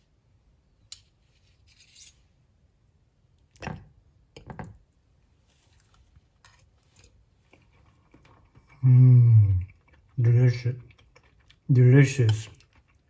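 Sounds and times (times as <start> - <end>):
cutlery scraping a plate: 0.9 - 2.2.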